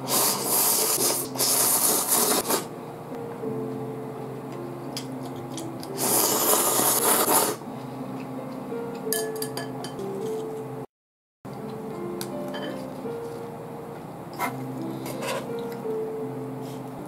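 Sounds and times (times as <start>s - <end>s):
noodles being slurped: 0.0s - 2.7s, 6.0s - 7.6s
soft background music: 0.0s - 10.9s, 11.5s - 17.0s.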